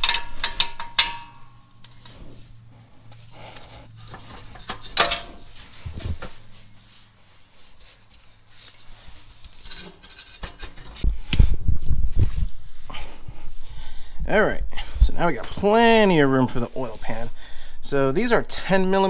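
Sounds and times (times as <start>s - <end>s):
clicks and knocks: 0.0s - 2.2s
gloved hands scraping metal: 3.1s - 11.0s.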